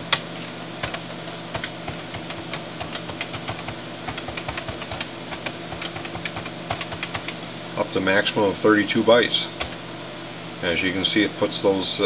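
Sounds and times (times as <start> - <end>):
steady low hum: 0.0 - 12.0
keyboard typing: 0.8 - 7.4.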